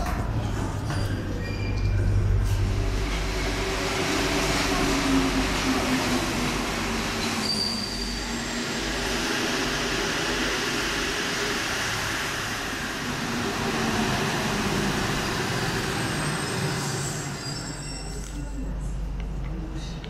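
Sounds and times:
train motors humming: 0.0 - 20.0
short high squeal: 7.4 - 8.4, 16.0 - 18.2.

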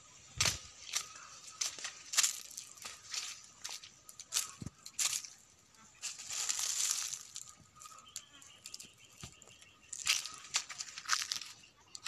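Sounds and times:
dry leaves and branches rustling: 0.2 - 12.0.

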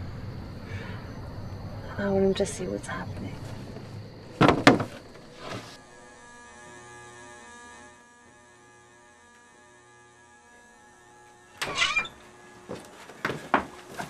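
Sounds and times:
steady hum of held tones: 0.0 - 14.0
sharp knocks: 4.4 - 5.7.

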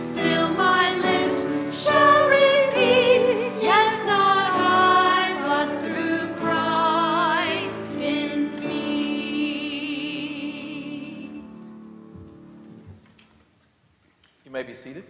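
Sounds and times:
women singing a hymn: 0.0 - 11.7
piano: 0.0 - 13.2.

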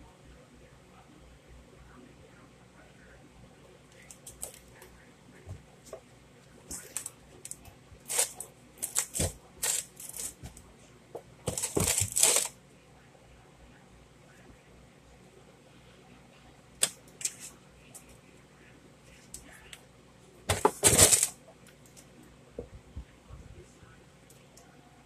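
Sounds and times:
cardboard rustling and scraping: 8.0 - 10.6, 11.4 - 12.5, 20.5 - 21.4.

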